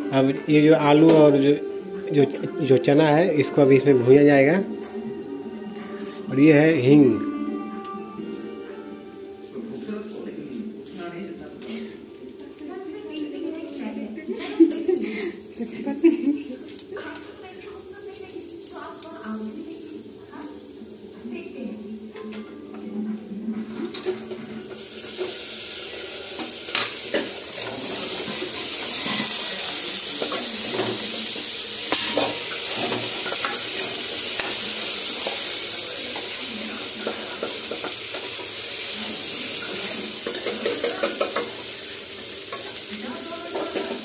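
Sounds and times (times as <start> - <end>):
food sizzling in hot oil: 0.0 - 10.9, 11.6 - 44.0
steel spoon scraping pan: 26.4 - 31.1, 31.8 - 36.4.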